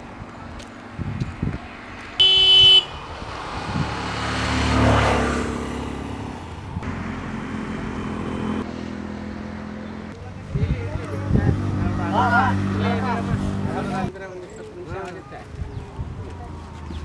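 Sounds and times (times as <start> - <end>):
vehicle horn toot: 2.2 - 3.0
motor vehicle driving past: 2.9 - 10.1.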